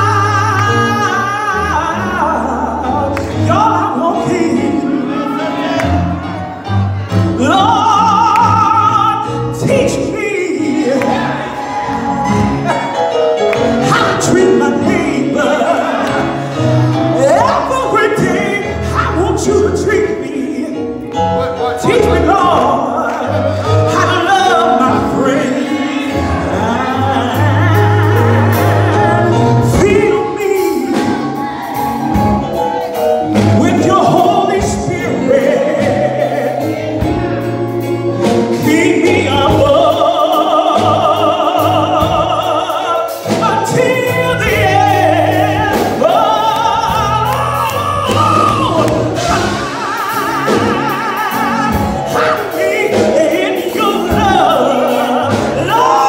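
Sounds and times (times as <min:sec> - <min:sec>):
woman singing gospel with vibrato: 0:00.0 - 0:05.8, 0:07.4 - 0:11.8, 0:21.8 - 0:32.2, 0:33.4 - 0:56.0.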